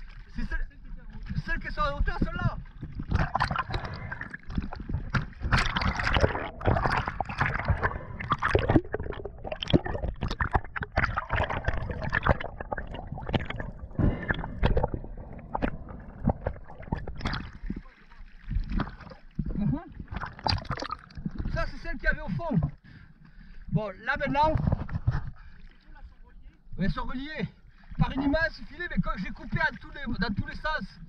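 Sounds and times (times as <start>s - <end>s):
water crackling against camera: 0.0s - 22.8s, 24.1s - 26.0s
water splashing and gurgling: 0.0s - 26.3s.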